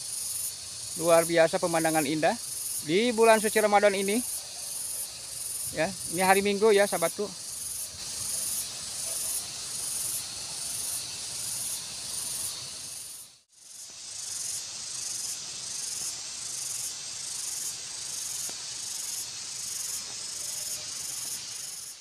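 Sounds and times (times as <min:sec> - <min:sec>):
high insect buzz: 0:00.0 - 0:22.0.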